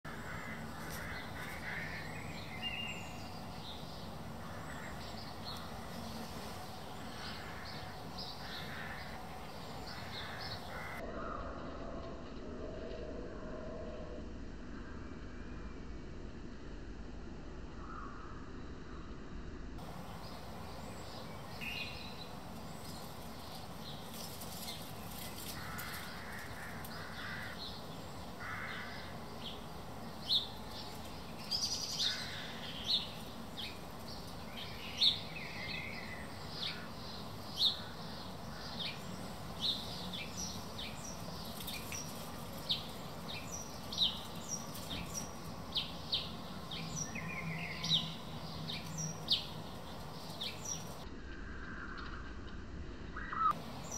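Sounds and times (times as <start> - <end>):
wild birds calling: 0.0 - 11.7, 19.8 - 52.2
songbirds chirping: 0.0 - 12.1, 19.8 - 52.6, 53.2 - 53.9
low background hum: 0.1 - 53.9
hoarse bird calls: 7.0 - 11.6, 22.9 - 30.7.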